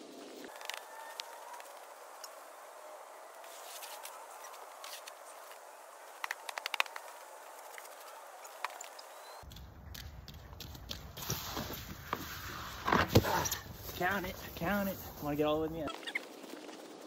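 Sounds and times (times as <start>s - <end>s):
steady outdoor hiss: 0.0s - 17.0s.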